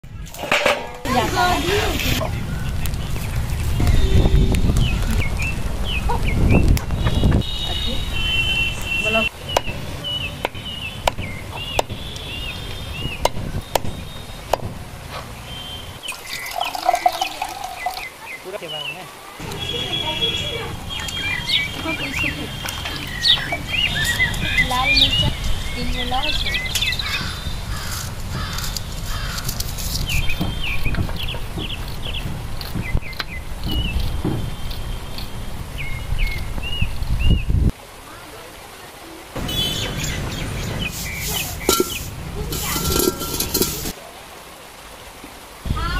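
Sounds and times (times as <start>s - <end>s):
small birds chirping: 1.4s - 37.6s, 38.8s - 43.7s
cleaver chopping on wood: 10.4s - 12.0s, 13.2s - 14.8s
water pouring into basin: 16.1s - 18.1s.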